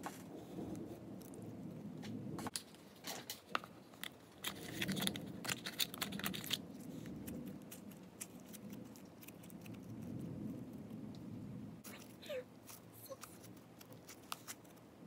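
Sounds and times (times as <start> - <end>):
slime squishing: 3.9 - 11.0, 11.8 - 15.0.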